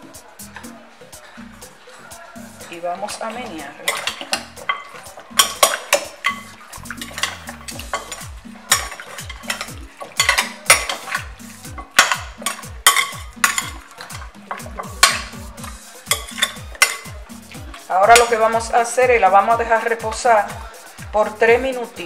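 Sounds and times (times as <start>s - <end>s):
spoon clinking on glass bowl: 3.1s - 18.4s.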